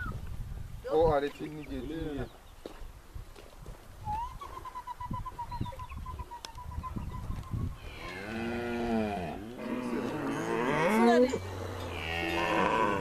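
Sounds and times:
cattle mooing: 0:07.8 - 0:13.0.

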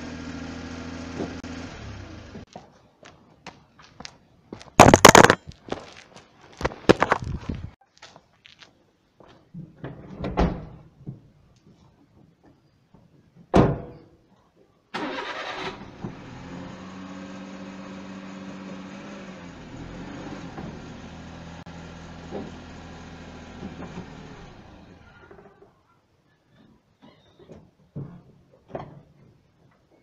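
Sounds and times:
van engine starting and running: 0:00.0 - 0:02.5, 0:15.0 - 0:25.2.

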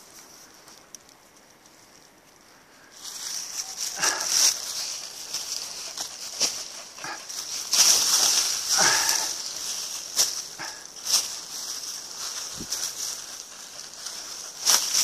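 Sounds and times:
brush rustling: 0:00.0 - 0:15.0
footsteps crunching: 0:03.0 - 0:15.0
twigs snapping: 0:03.9 - 0:13.0.

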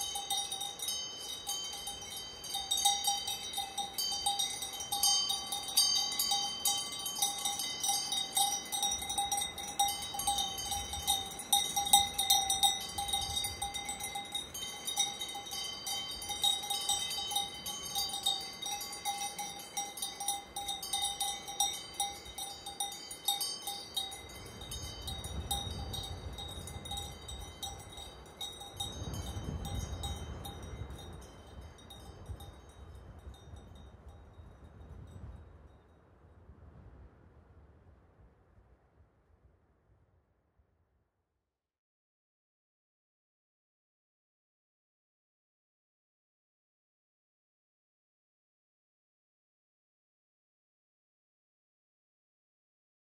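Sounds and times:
metal bells clanking and ringing: 0:00.0 - 0:33.6.

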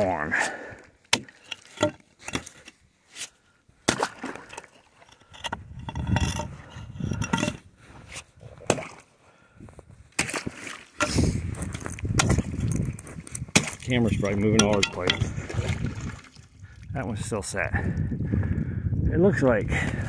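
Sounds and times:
slush and ice knocking and sloshing: 0:01.1 - 0:09.1, 0:10.1 - 0:16.5
low rumbling handling noise: 0:05.1 - 0:07.7, 0:11.0 - 0:16.0.

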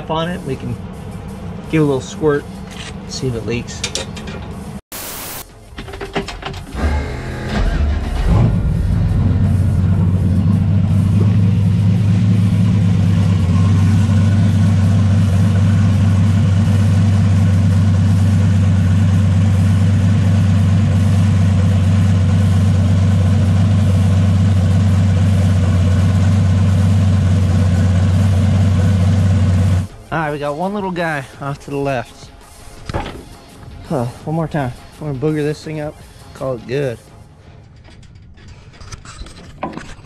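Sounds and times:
car engine idling: 0:00.0 - 0:04.8, 0:06.8 - 0:31.3.

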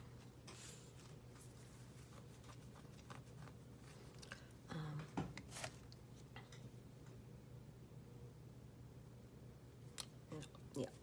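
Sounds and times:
low hum of voice: 0:04.6 - 0:05.3.

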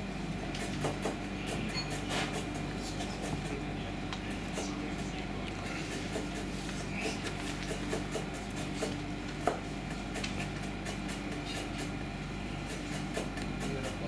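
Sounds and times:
low machinery hum: 0:00.0 - 0:14.0.

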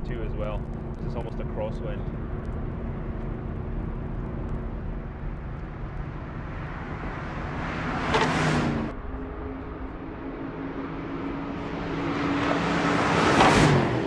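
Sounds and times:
car engine passing by: 0:05.1 - 0:14.0.

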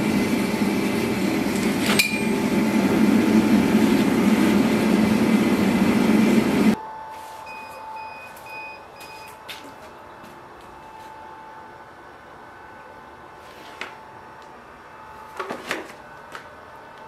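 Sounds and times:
gas forge burner rushing: 0:00.0 - 0:06.8.

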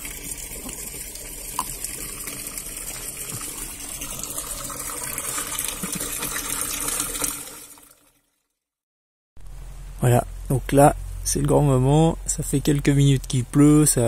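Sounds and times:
water pouring into plastic cistern: 0:00.0 - 0:08.3.

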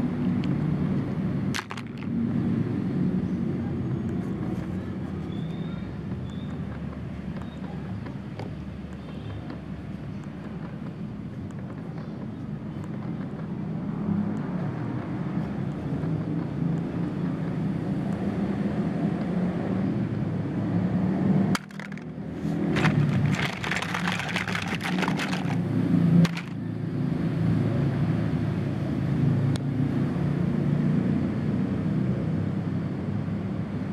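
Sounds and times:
plastic toys clicking and rattling: 0:01.5 - 0:02.2, 0:21.6 - 0:26.6
low outdoor rumble: 0:21.6 - 0:27.0.

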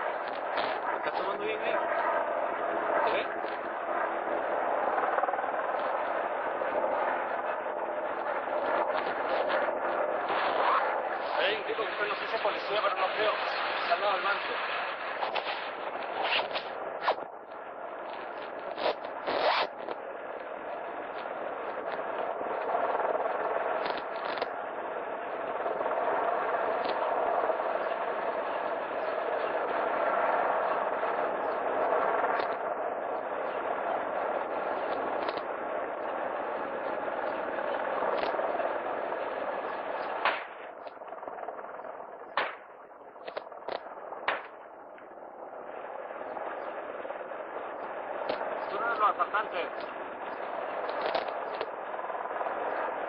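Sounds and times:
faint sharp cracks: 0:00.0 - 0:01.4, 0:03.0 - 0:03.8, 0:05.7 - 0:06.0, 0:08.1 - 0:22.8, 0:23.8 - 0:24.6, 0:26.7 - 0:27.0, 0:32.3 - 0:32.7, 0:34.8 - 0:35.5, 0:38.1 - 0:38.5, 0:39.7 - 0:41.1, 0:41.9 - 0:45.2, 0:47.8 - 0:51.8
steady rushing noise: 0:00.0 - 0:53.0
gunshots: 0:08.8 - 0:17.3, 0:40.0 - 0:40.7, 0:42.3 - 0:44.6.

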